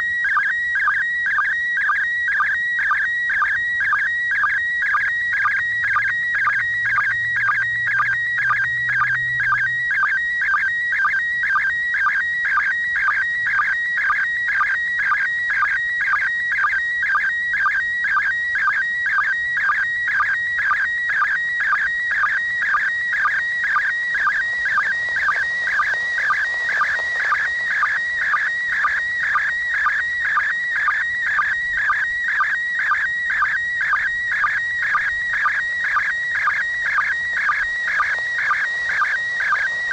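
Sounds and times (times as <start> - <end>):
warbling radio signal tone: 20.6 - 39.9.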